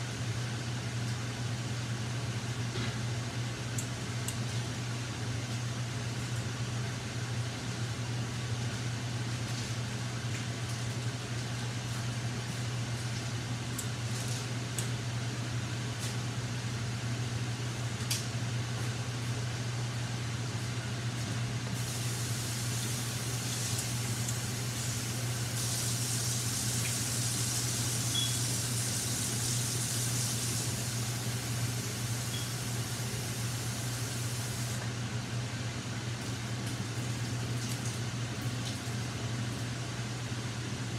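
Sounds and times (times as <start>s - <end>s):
low fan hum: 0.0s - 40.9s
meat sizzling in a pan: 21.8s - 34.7s.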